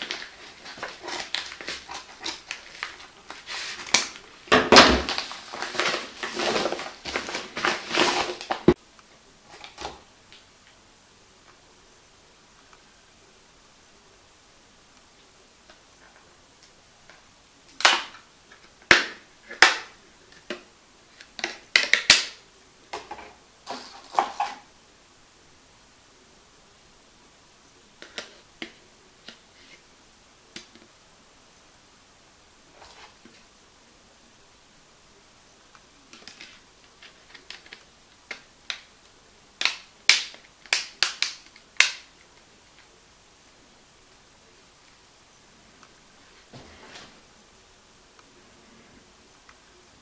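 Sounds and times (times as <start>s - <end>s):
plastic clicks and snaps: 39.6s - 42.9s.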